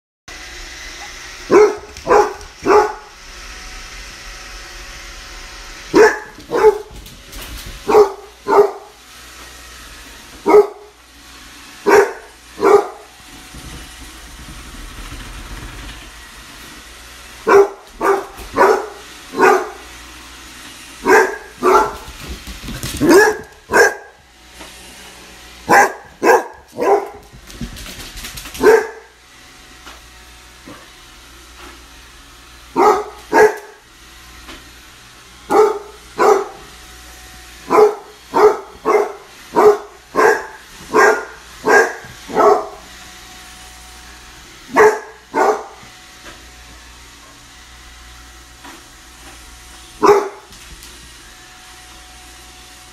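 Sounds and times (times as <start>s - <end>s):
puppy barking: 1.5s - 3.1s, 5.9s - 7.0s, 7.8s - 9.0s, 10.4s - 11.0s, 11.8s - 13.1s, 17.4s - 19.8s, 21.0s - 22.1s, 23.0s - 24.2s, 25.6s - 27.3s, 28.6s - 29.2s, 32.7s - 33.8s, 35.5s - 36.7s, 37.6s - 42.8s, 44.7s - 45.8s, 50.0s - 50.5s.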